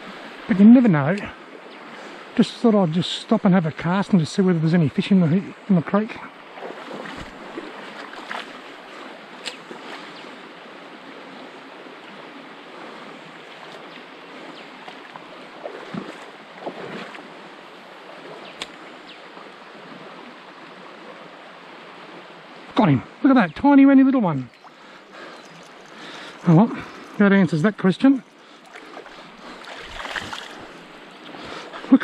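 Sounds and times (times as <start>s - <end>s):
creek water over stones: 0.0s - 32.0s.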